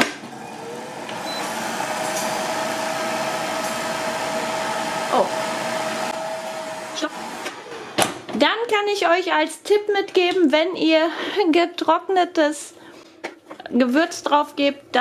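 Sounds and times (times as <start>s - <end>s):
fan humming: 0.0s - 8.5s.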